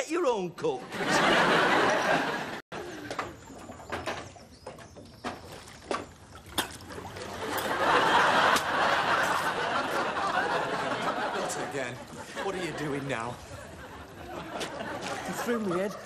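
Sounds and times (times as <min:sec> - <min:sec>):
audience laughter: 0:00.8 - 0:03.1, 0:07.3 - 0:16.0
water lapping against stone: 0:03.0 - 0:09.6.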